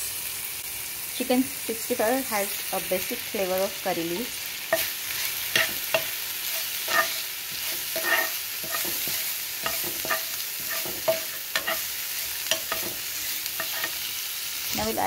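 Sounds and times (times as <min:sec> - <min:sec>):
leaves sizzling in hot oil: 0:00.0 - 0:15.0
spoon scraping a pan: 0:04.7 - 0:14.2.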